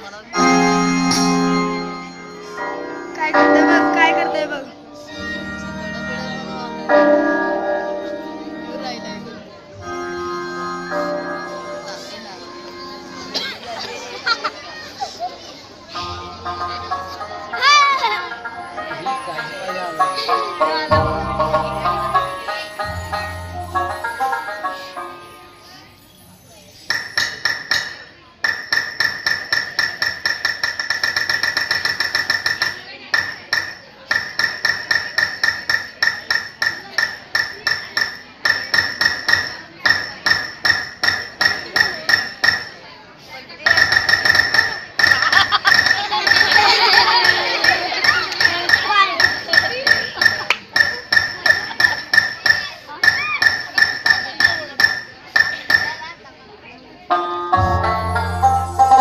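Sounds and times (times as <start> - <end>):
metal strikes ringing: 2.5 - 4.9.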